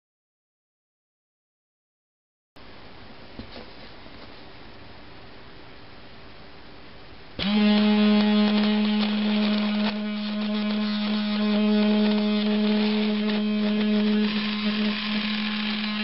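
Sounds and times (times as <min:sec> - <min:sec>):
small electric motor humming: 0:07.4 - 0:16.0.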